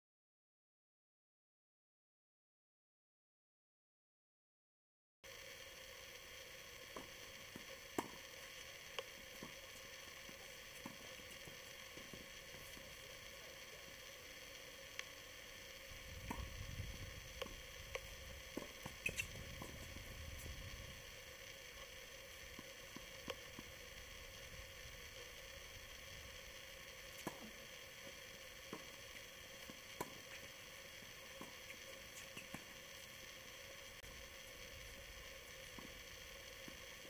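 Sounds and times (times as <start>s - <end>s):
faint hum: 5.2s - 37.0s
faint hiss: 5.3s - 37.0s
tennis balls struck and bouncing: 16.2s - 16.5s, 27.2s - 27.6s.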